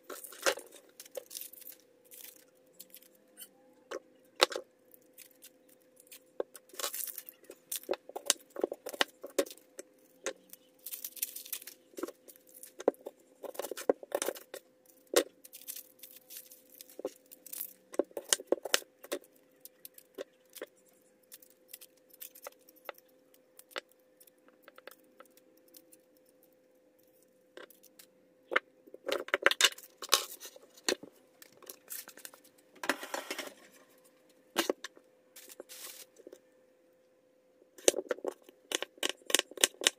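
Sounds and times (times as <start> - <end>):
onion skin peeling and rustling: 0.0 - 3.5, 4.9 - 26.4, 29.0 - 34.8, 35.4 - 36.4.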